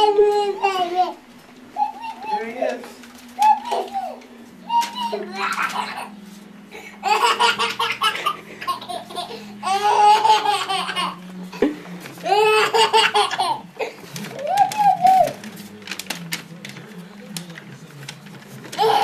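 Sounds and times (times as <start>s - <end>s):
toddler giggling and laughing: 0.0s - 1.2s, 3.4s - 11.2s, 12.2s - 15.3s.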